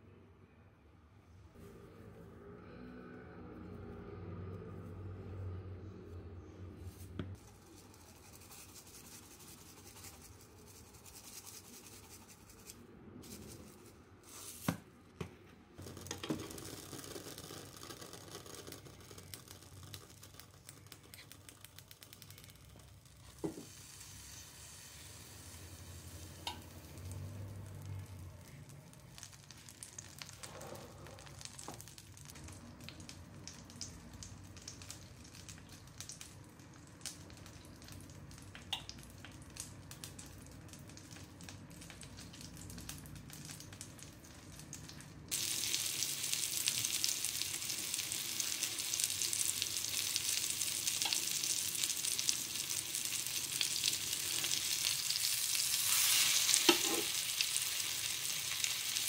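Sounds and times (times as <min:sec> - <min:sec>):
butter sizzling in frying pan: 0:15.8 - 0:28.2, 0:29.1 - 0:30.4, 0:31.4 - 0:59.0.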